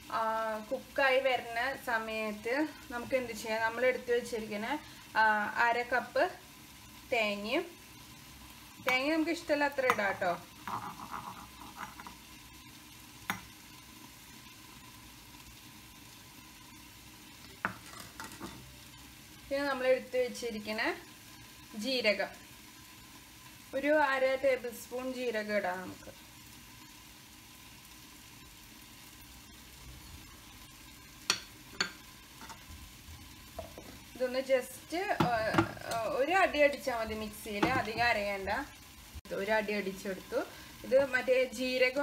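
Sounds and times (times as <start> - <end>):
faint steady hiss: 0.0 - 42.0
glass bowl tap: 33.6 - 34.0.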